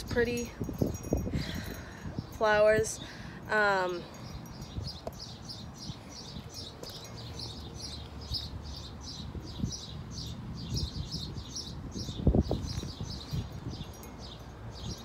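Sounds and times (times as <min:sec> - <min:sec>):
small bird chirping: 0:04.2 - 0:15.0.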